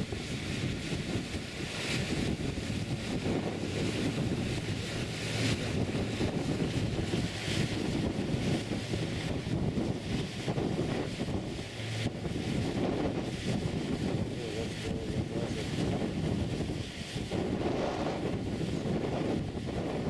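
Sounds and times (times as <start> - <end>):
boat engine running hard: 0.0 - 20.0
propeller wash churning water: 0.0 - 20.0
wind gusts on microphone: 0.0 - 20.0.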